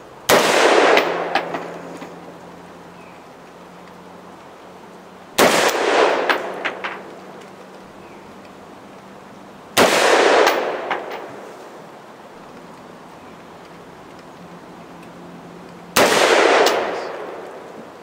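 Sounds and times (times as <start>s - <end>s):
rifle shots echoing: 0.3s - 2.2s, 5.4s - 7.1s, 9.7s - 11.6s, 15.9s - 17.7s.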